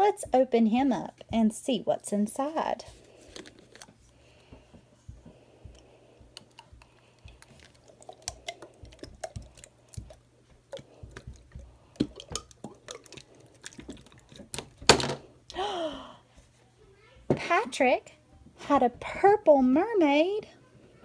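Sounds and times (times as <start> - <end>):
wet clicks and squelches of slime: 6.4 - 14.7.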